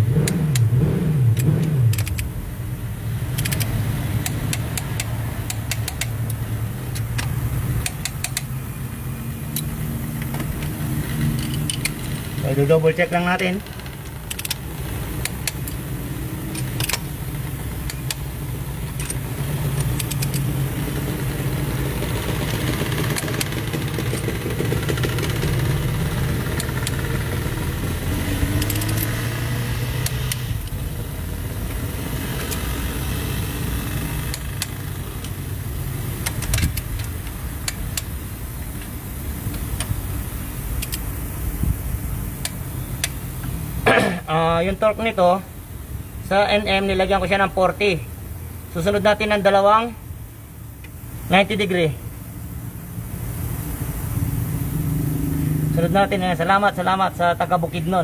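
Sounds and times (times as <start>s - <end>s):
engine running: 0.0s - 47.4s, 52.0s - 58.0s
torque wrench clicks: 0.1s - 0.7s, 1.3s - 2.3s, 3.3s - 8.6s, 9.5s - 12.7s, 13.4s - 20.6s, 22.4s - 30.8s, 31.6s - 35.4s, 36.1s - 41.2s, 42.4s - 43.6s.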